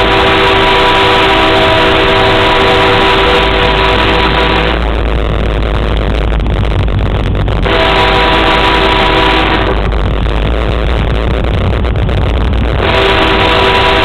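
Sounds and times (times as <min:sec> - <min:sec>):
locomotive air horn blast: 0:00.0 - 0:05.0, 0:07.6 - 0:10.0, 0:12.8 - 0:14.0
train engine and wheels rumbling: 0:00.0 - 0:14.0.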